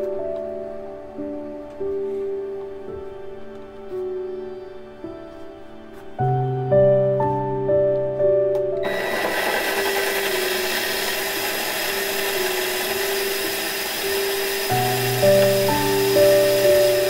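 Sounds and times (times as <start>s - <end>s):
machine switching on: 8.8s - 17.0s
rice grains rubbing in machine: 8.8s - 17.0s.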